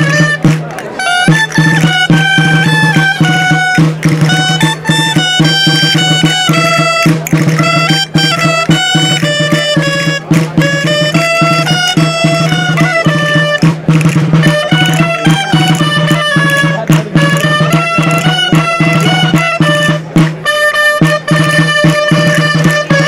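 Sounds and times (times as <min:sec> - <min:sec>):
shawms playing folk dance tune: 0:00.0 - 0:23.0.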